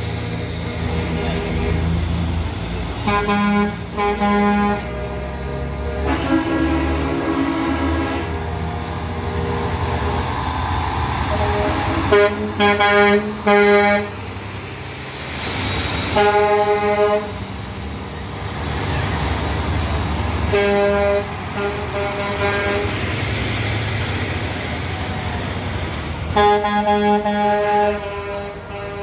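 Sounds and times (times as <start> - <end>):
truck engines rumbling past: 0.0 - 29.0
air horn blasts: 3.0 - 5.2, 5.8 - 8.4, 11.3 - 14.2, 16.2 - 17.4, 20.5 - 23.0, 26.3 - 29.0.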